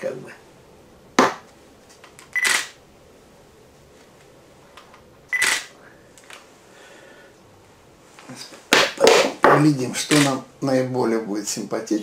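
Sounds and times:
camera shutter firing: 2.4s - 2.8s, 5.4s - 5.7s.

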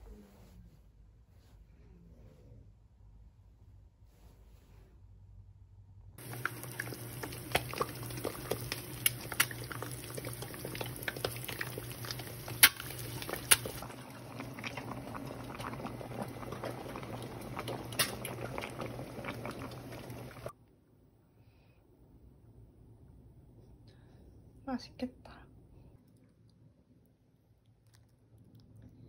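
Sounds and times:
eggs sizzling in oil: 6.2s - 20.5s
stew bubbling in a pot: 6.2s - 20.6s.

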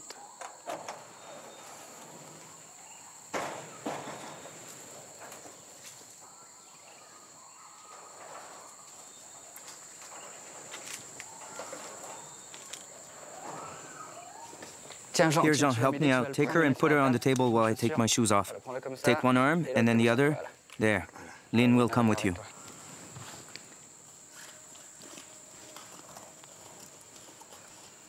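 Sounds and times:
insects droning: 0.0s - 28.0s.

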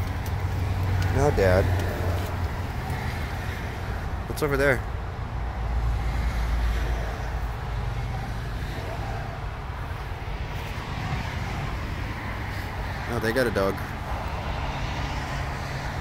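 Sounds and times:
vehicle engine rumble: 0.0s - 16.0s.

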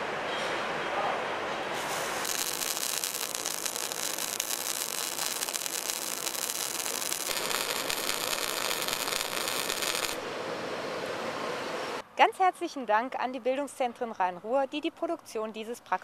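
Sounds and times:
welding arc crackling and hissing: 1.8s - 10.3s.

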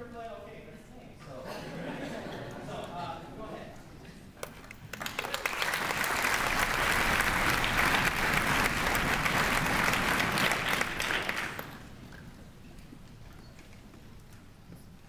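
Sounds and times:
audience applauding: 4.4s - 12.0s.

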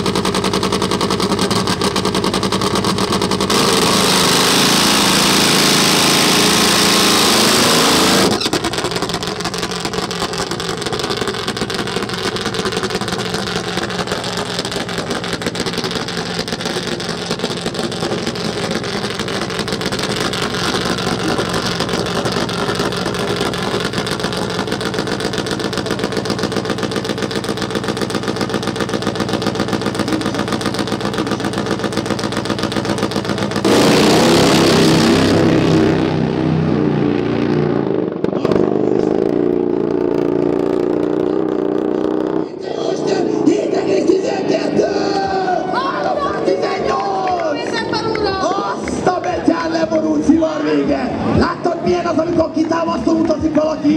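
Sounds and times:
motorbike engine idling low: 0.0s - 3.5s, 8.3s - 33.6s
drag bike engine revving high: 0.0s - 46.3s.

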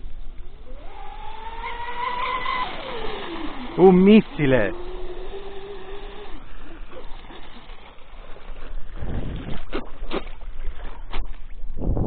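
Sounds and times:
water noise: 0.0s - 12.0s
electric motors whining: 0.1s - 8.5s
water splashes: 0.8s - 11.8s.

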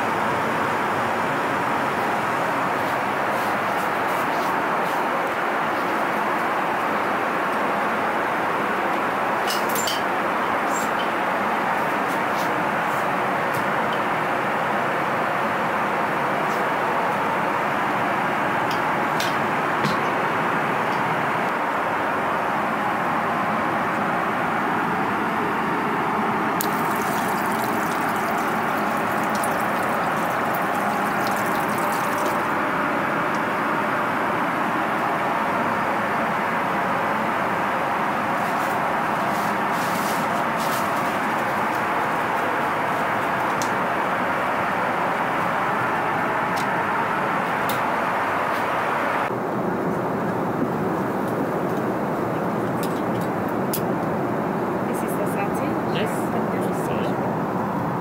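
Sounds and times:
tap water splashing into basin: 26.6s - 32.5s
airliner cabin drone: 44.7s - 58.0s.

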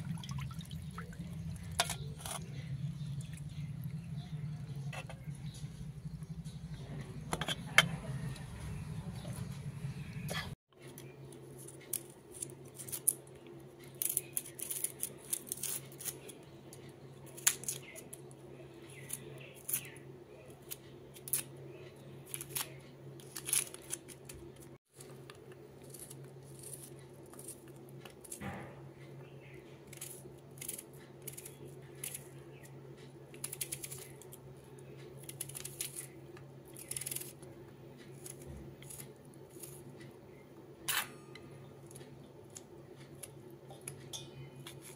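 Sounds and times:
low hum: 0.0s - 11.6s.

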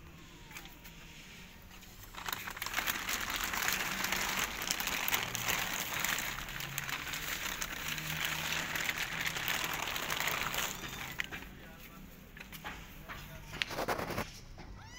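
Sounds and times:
plastic sheeting crinkling: 1.2s - 11.8s.

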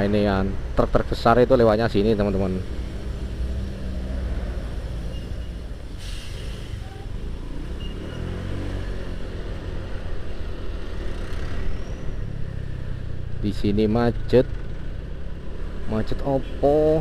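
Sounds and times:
other vehicle engines: 0.0s - 17.0s
short hiss: 6.0s - 6.9s.

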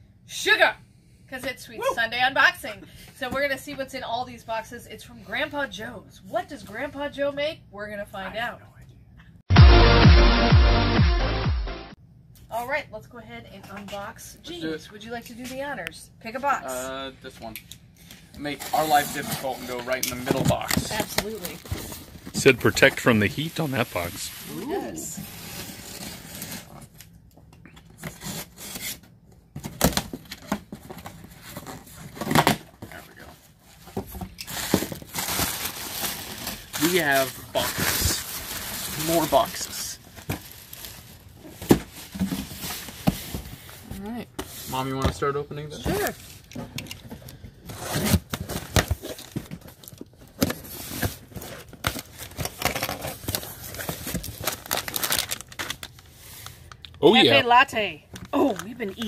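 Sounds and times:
foil bags crinkling: 20.5s - 24.7s, 34.5s - 43.0s, 48.9s - 56.8s.

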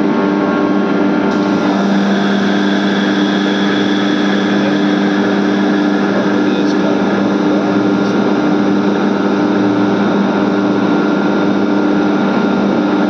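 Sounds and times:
air compressor humming: 1.3s - 13.0s.

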